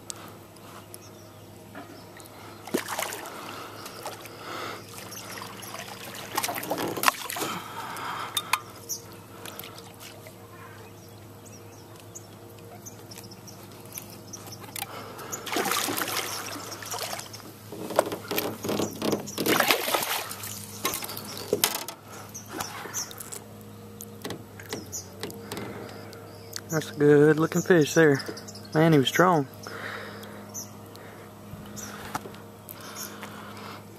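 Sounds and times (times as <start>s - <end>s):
faint low hum: 0.0s - 33.9s
fish splashing at water surface: 2.6s - 8.4s, 14.5s - 17.5s, 19.3s - 21.8s.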